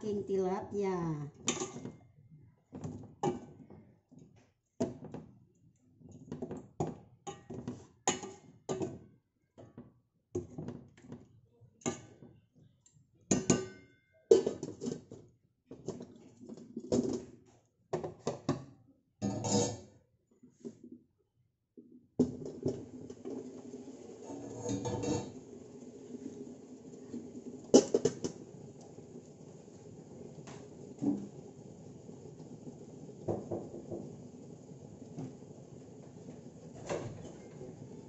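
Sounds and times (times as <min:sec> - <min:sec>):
metal spoon scraping a steel wok: 0:19.2 - 0:19.9, 0:24.2 - 0:25.4.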